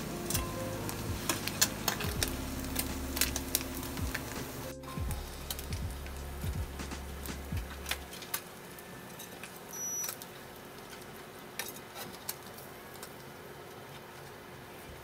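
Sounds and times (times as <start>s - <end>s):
faint steady hum: 0.0s - 15.0s
oil crackling and popping: 0.0s - 15.0s.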